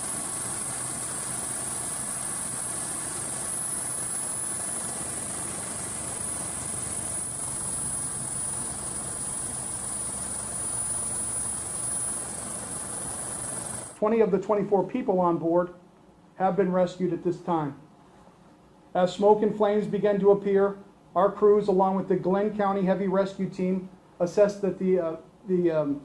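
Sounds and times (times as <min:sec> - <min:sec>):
helicopter engine and rotor: 0:00.0 - 0:14.0
high-pitched whine: 0:00.0 - 0:14.1.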